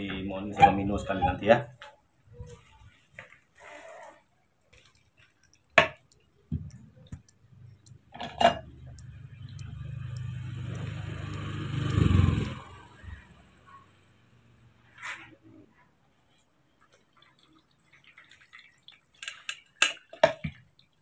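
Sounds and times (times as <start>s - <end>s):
low steady hum: 6.5s - 14.8s.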